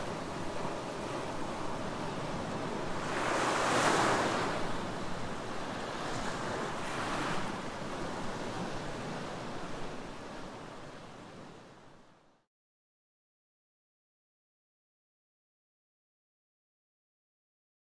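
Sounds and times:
small waves washing on beach: 0.0 - 12.0.

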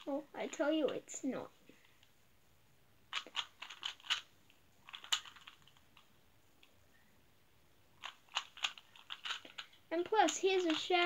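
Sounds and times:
puzzle cube layers clicking: 3.1 - 6.1, 8.0 - 11.0.

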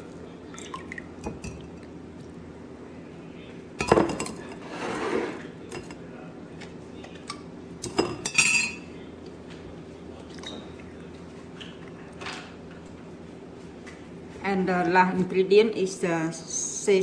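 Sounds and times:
dishes clattering: 3.8 - 6.0, 7.1 - 8.9.

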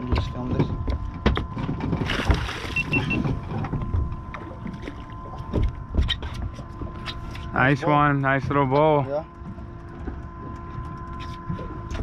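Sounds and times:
knocks and clicks on hull: 0.0 - 7.5, 8.4 - 12.0
fish splashing: 2.0 - 3.2
quick electronic beeps: 2.7 - 3.2.

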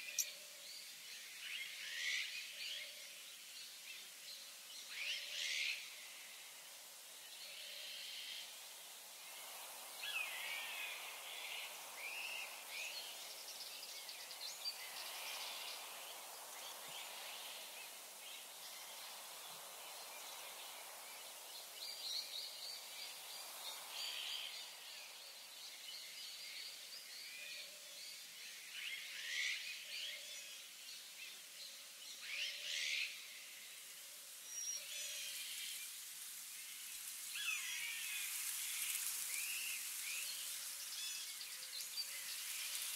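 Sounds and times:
birds singing and calling: 0.0 - 0.4
steady high hiss: 0.0 - 42.9.

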